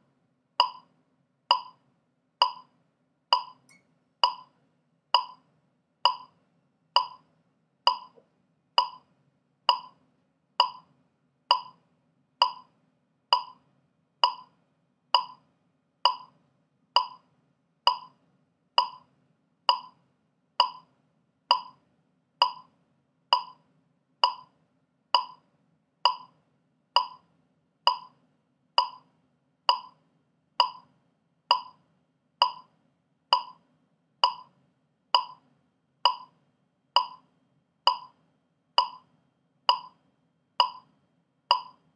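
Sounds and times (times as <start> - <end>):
metronome clicking: 0.6 - 0.8, 1.5 - 1.8, 2.4 - 2.7, 3.4 - 4.5, 5.2 - 5.4, 6.1 - 6.3, 7.0 - 7.2, 7.9 - 8.2, 8.8 - 9.0, 9.7 - 10.0, 10.6 - 10.8, 11.5 - 11.8, 12.4 - 12.6, 13.3 - 13.6, 14.2 - 14.5, 15.2 - 15.4, 16.1 - 16.3, 17.0 - 17.2, 17.9 - 18.1, 18.8 - 19.0, 19.7 - 19.9, 20.6 - 20.8, 21.5 - 21.8, 22.4 - 22.7, 23.4 - 23.6, 24.2 - 24.5, 25.2 - 25.4, 26.1 - 26.3, 27.0 - 27.2, 27.9 - 28.1, 28.8 - 29.0, 29.7 - 30.0, 30.6 - 30.8, 31.5 - 31.8, 32.4 - 32.7, 33.4 - 33.6, 34.2 - 34.5, 35.2 - 35.4, 36.1 - 36.3, 37.0 - 37.2, 37.9 - 38.2, 38.8 - 39.0, 39.7 - 40.0, 40.6 - 40.9, 41.5 - 41.9.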